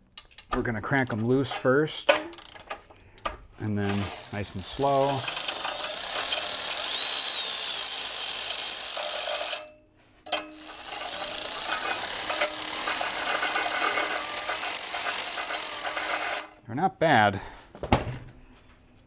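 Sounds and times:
ratchet click: 0:05.0 - 0:07.0
electric ratchet motor whine: 0:05.0 - 0:09.7, 0:10.5 - 0:16.6.

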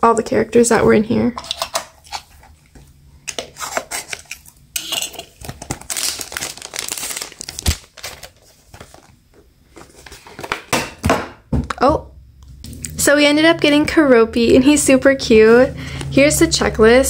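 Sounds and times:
plastic wrapper crinkling and tearing: 0:05.2 - 0:09.2.

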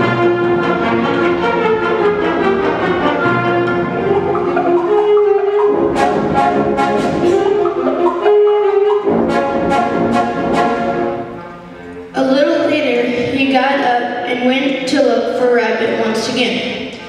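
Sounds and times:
concert band brass and woodwind chords: 0:00.0 - 0:12.2.

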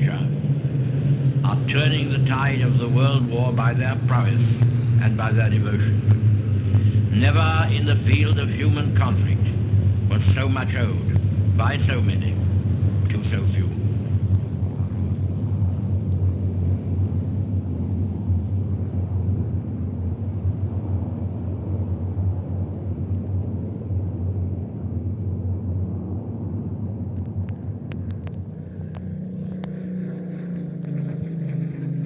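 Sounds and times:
piston aircraft engines droning: 0:00.0 - 0:32.0
single aircraft engine: 0:00.0 - 0:32.0
sharp clicks: 0:27.1 - 0:31.0.

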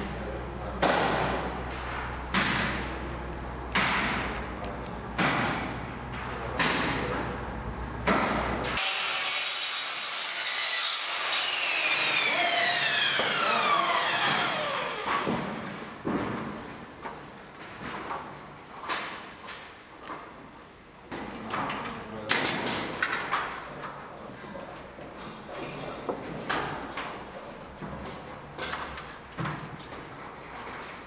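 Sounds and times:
sharp knocks: 0:03.7 - 0:04.4, 0:05.2 - 0:07.2
mitre saw cutting wood: 0:08.8 - 0:15.7
saw blade winding down whine: 0:11.2 - 0:15.6.

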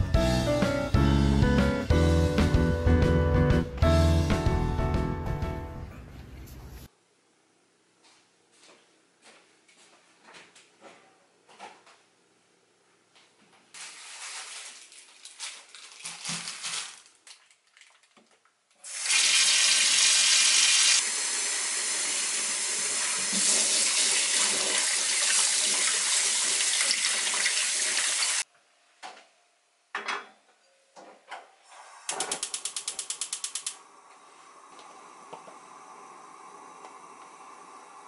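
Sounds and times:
gas igniter clicking: 0:32.1 - 0:33.8.

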